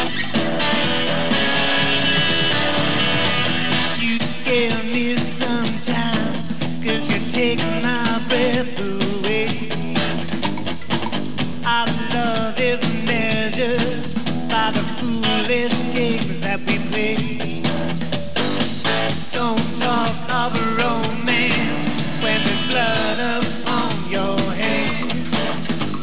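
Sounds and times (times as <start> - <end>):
rock band playing: 0.0 - 26.0
man singing: 3.9 - 10.0, 11.6 - 17.8, 19.2 - 25.6.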